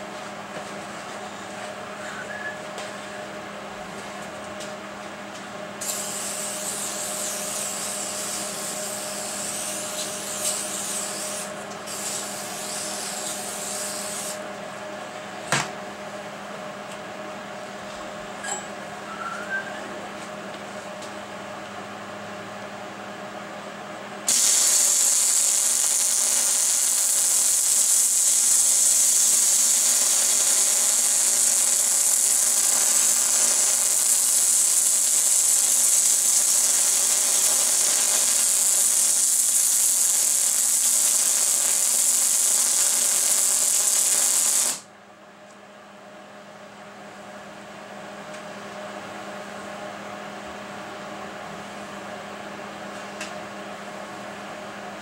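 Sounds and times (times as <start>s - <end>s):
welding arc hissing: 5.8s - 14.4s, 24.3s - 44.9s.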